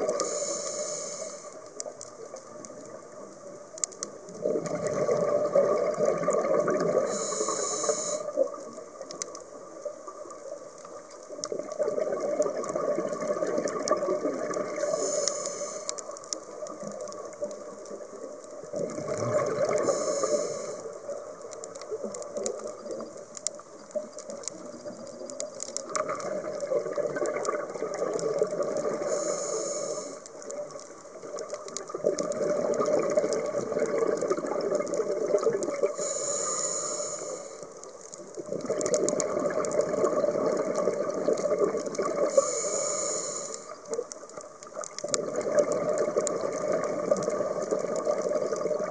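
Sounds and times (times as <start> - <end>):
regulator inhale hiss: 0.0 - 1.8, 6.9 - 8.5, 14.7 - 16.2, 19.7 - 21.1, 28.8 - 30.5, 35.8 - 38.0, 42.2 - 44.0
exhaled bubbles rushing: 4.3 - 7.2, 11.5 - 14.9, 18.7 - 19.9, 24.6 - 29.1, 30.6 - 36.0, 38.4 - 42.4, 44.9 - 48.9.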